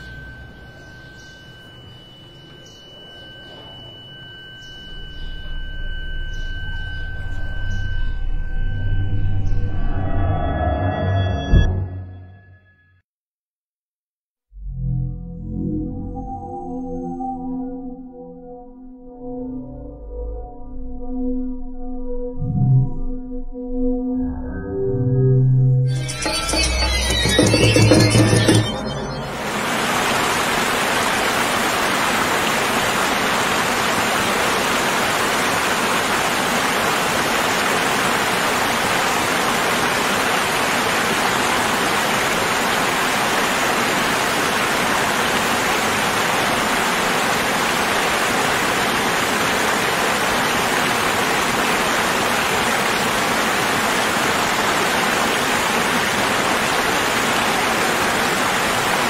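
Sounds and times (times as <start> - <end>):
waterfall rushing: 25.9 - 59.0.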